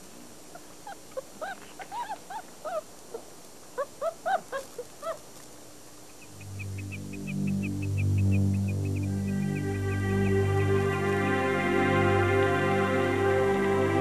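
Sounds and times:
wolf pup whimpering: 0:00.5 - 0:05.2
low music: 0:06.4 - 0:14.0.

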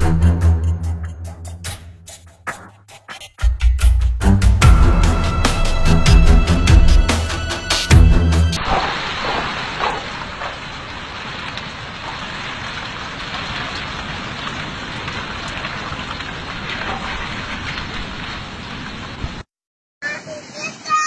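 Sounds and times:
rock and gravel rushing: 0:08.6 - 0:18.5.

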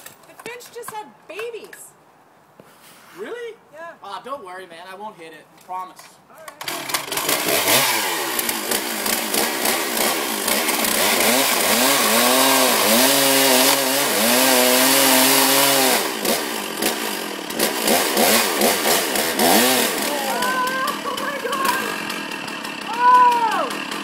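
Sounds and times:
chainsaw revving: 0:06.5 - 0:24.0.

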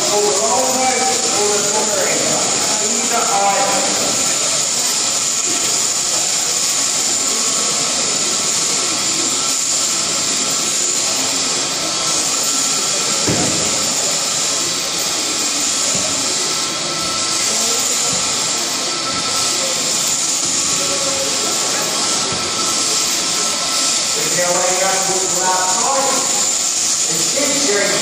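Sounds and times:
shearing machine whirring: 0:00.0 - 0:28.0
low thump: 0:13.3 - 0:13.7.

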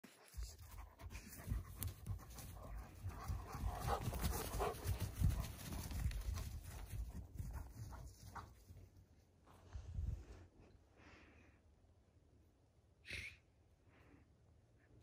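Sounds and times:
puppies panting: 0:00.2 - 0:08.6.

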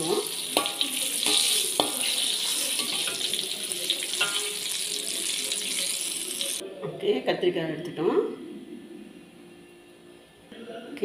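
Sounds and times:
vegetables sizzling in hot oil: 0:00.0 - 0:06.6
metal spatula clinking on wok: 0:00.6 - 0:03.5, 0:04.1 - 0:04.6.

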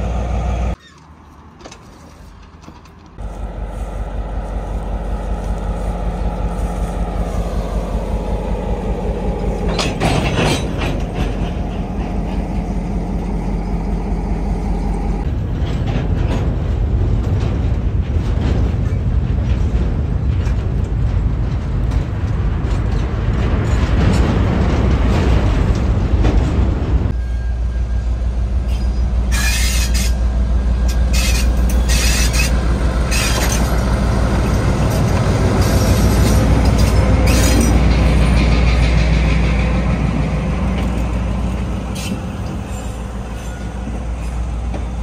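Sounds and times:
diesel locomotive engine running: 0:00.0 - 0:00.9, 0:02.0 - 0:45.0
wheels clicking on rails: 0:00.7 - 0:27.2, 0:28.7 - 0:45.0
freight wagons rolling past: 0:01.6 - 0:28.0.

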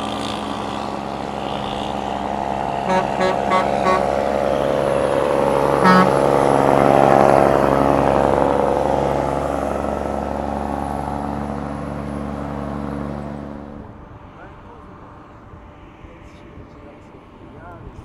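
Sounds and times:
truck diesel engine climbing: 0:00.0 - 0:18.0
horn toots: 0:02.8 - 0:04.8, 0:05.6 - 0:06.7.

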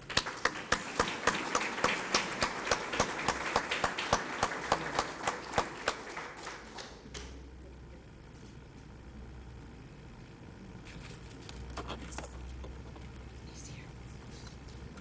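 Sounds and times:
audience applauding: 0:00.0 - 0:07.4
sharp nearby claps: 0:00.0 - 0:07.4.

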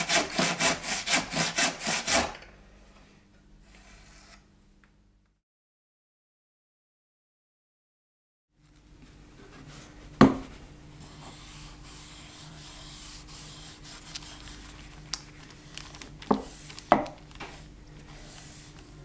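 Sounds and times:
cloth rubbing wood: 0:11.0 - 0:15.0, 0:16.3 - 0:19.0.

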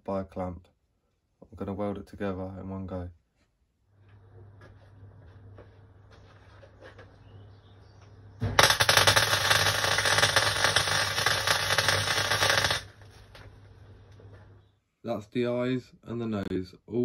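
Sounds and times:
welder arc crackling: 0:08.4 - 0:14.6.

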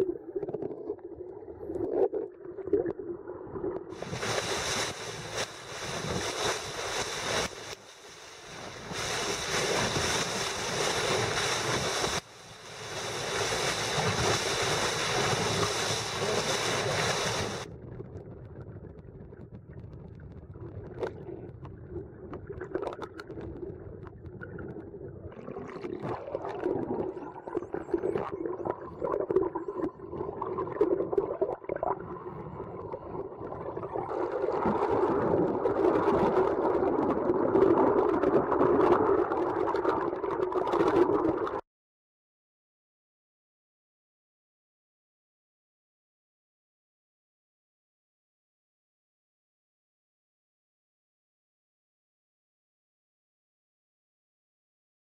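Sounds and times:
muffled underwater sea sound: 0:00.0 - 0:41.6
water rushing against boat hull: 0:03.9 - 0:17.7
spray hissing: 0:04.0 - 0:17.6.

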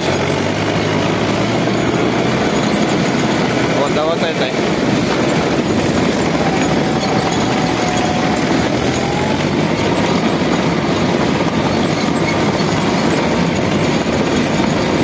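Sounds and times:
tractor diesel engine under load: 0:00.0 - 0:15.0
steel tracks clattering: 0:00.1 - 0:15.0.

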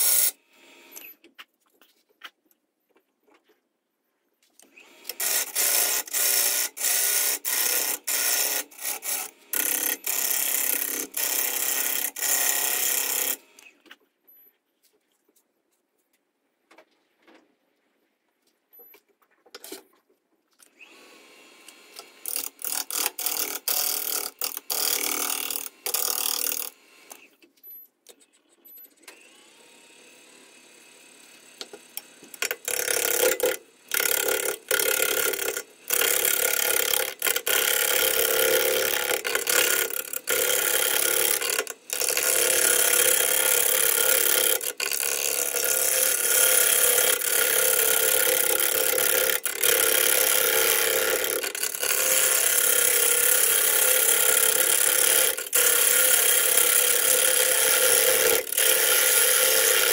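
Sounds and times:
gouge cutting wood on a lathe: 0:00.0 - 0:00.3, 0:04.8 - 0:13.7, 0:21.0 - 0:27.2, 0:29.1 - 0:59.9.

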